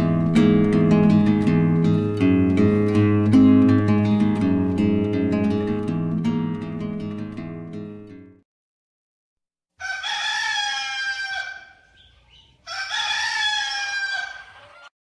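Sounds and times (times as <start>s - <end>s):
rooster crowing: 9.8s - 14.9s.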